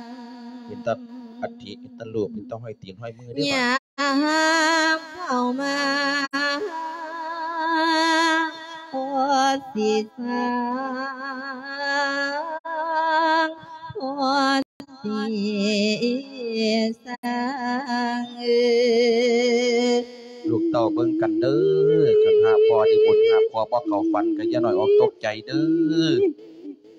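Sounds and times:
man chanting into microphone: 0.7s - 3.6s, 20.5s - 26.3s.

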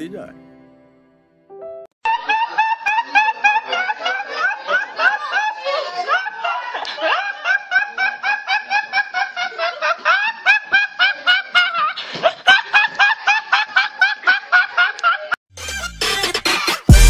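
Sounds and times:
young man laughing: 2.1s - 15.4s.

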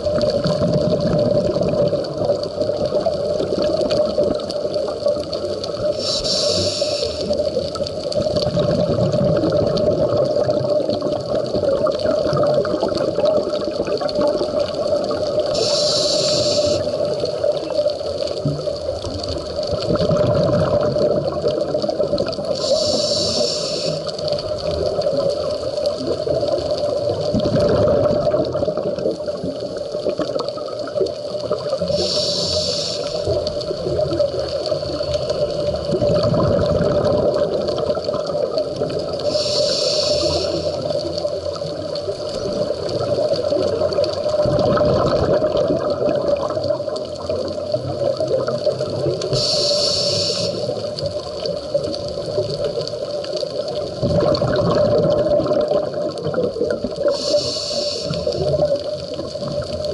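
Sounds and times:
exhaled bubbles rumbling: 0.0s - 59.9s
regulator hiss on inhale: 5.8s - 7.8s, 15.3s - 17.8s, 22.4s - 24.6s, 31.8s - 35.9s, 39.1s - 41.4s, 49.1s - 51.2s, 57.0s - 58.7s.

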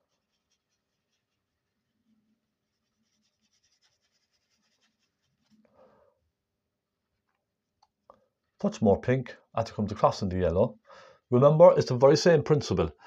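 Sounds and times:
brush scratching on canvas: 0.0s - 5.6s.

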